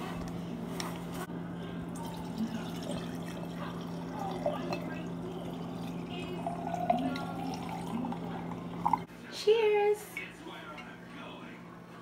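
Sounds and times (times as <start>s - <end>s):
wine pouring over ice: 1.9s - 9.1s.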